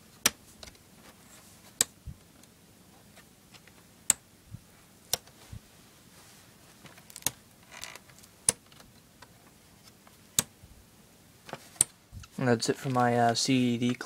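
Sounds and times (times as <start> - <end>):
sliding rustle: 4.7 - 7.1
plastic disc caddies clacking: 6.8 - 10.5.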